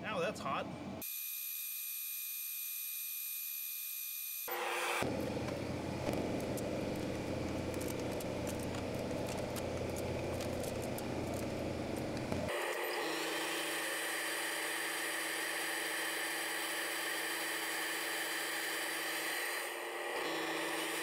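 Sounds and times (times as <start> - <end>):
laser cutter fan running: 4.5 - 21.0.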